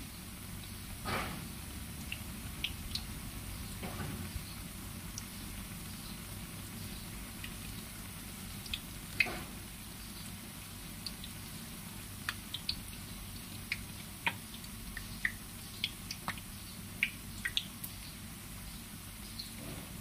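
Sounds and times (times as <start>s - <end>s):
oil bubbling in a wok: 0.0s - 20.0s
sharp pops and crackles: 8.5s - 9.6s, 12.2s - 18.0s.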